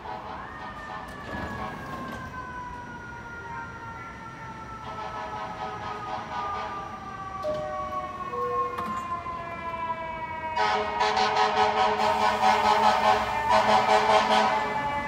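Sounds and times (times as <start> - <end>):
train traction motors whining: 10.6 - 15.0.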